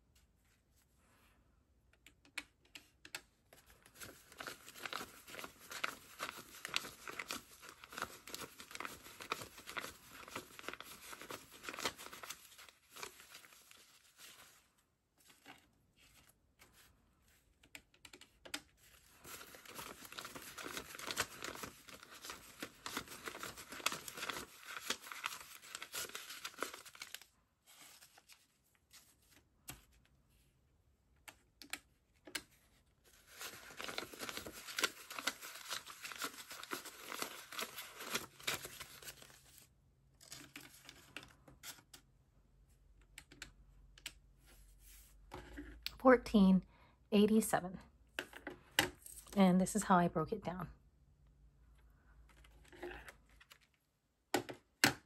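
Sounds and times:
paper bills rustling: 3.6s - 16.9s, 18.8s - 30.0s, 32.4s - 41.9s.

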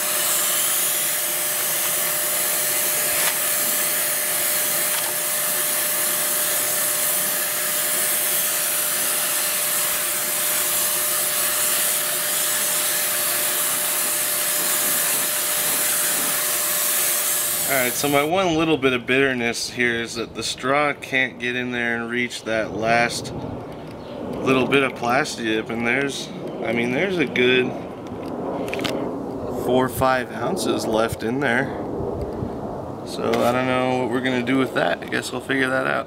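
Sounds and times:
rush of air from spray gun: 0.0s - 18.3s
turbine whine: 0.0s - 36.0s.

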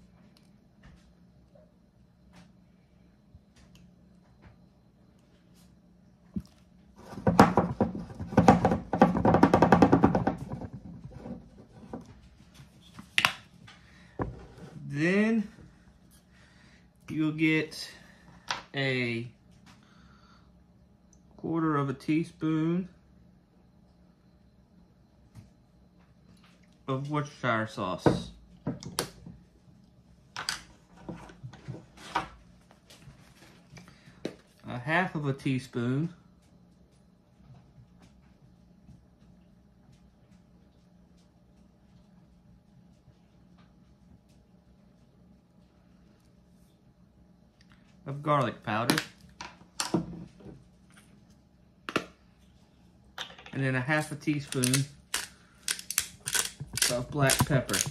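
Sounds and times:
plastic spoons clicking on wood: 54.5s - 57.9s.

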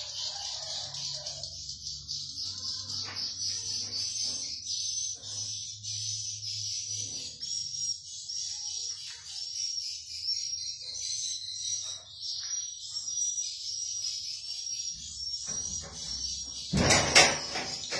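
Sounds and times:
sharp bird chirp: 0.0s - 17.9s.

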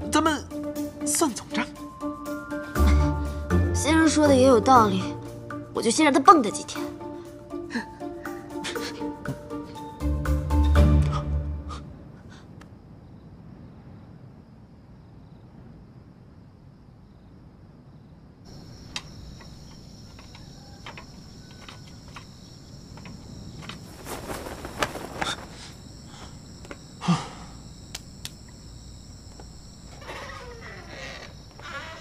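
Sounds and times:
crickets chirping: 0.0s - 32.0s.

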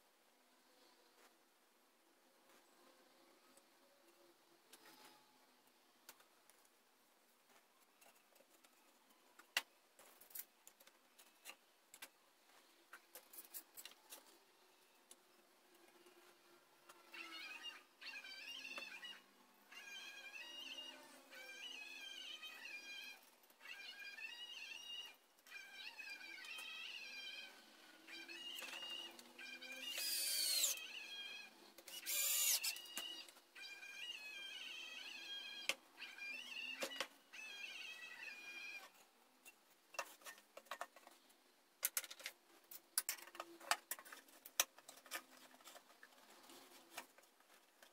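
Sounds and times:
cordless drill whining: 28.1s - 31.3s, 31.9s - 38.9s.

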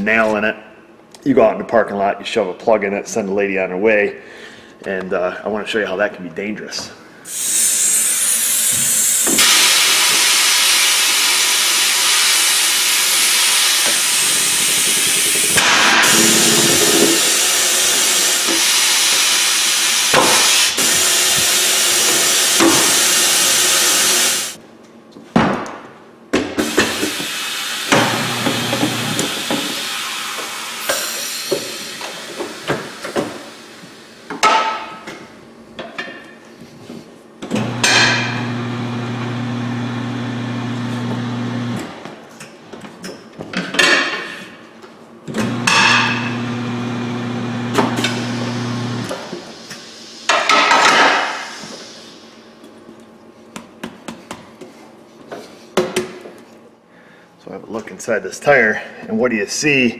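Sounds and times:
air hissing out of a tire: 7.2s - 24.6s, 26.6s - 34.3s, 48.0s - 52.4s
tire changer motor humming: 13.5s - 18.5s, 27.9s - 29.4s, 37.6s - 41.9s, 45.4s - 49.1s.

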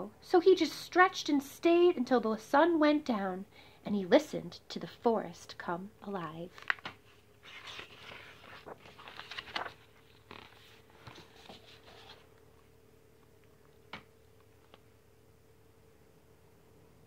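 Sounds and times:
paper page rustling: 6.5s - 12.4s.

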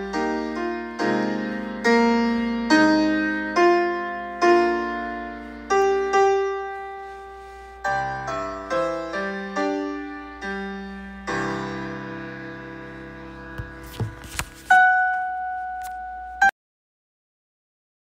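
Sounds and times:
piano playing hymn chords: 0.0s - 16.5s.

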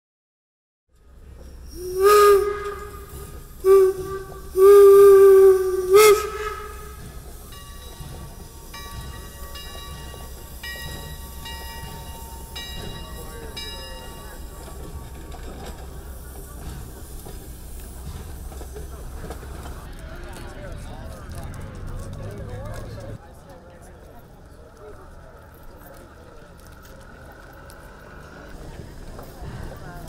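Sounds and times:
steam locomotive whistle blasts: 1.6s - 9.2s
locomotive bell ringing: 5.9s - 16.8s.

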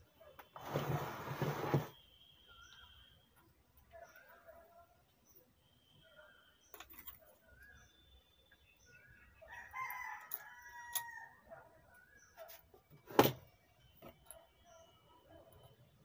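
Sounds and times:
rooster crowing: 9.5s - 11.4s.

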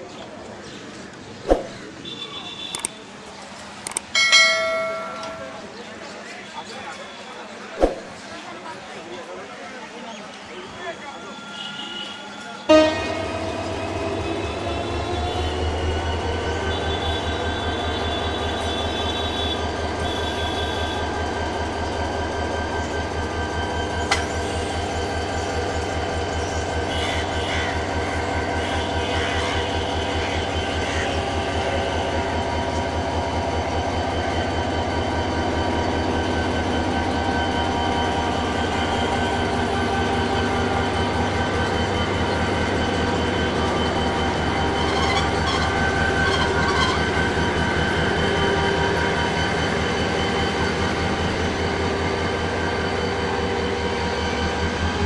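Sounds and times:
sharp click: 2.7s - 3.0s, 3.8s - 4.1s
diesel locomotive engine throbbing: 12.3s - 55.0s.

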